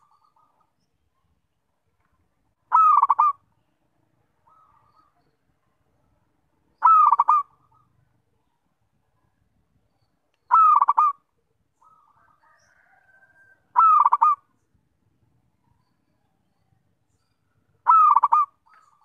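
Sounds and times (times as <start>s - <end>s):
dove cooing: 2.7s - 3.4s, 6.8s - 8.0s, 10.5s - 11.2s, 11.8s - 14.5s, 17.6s - 19.0s.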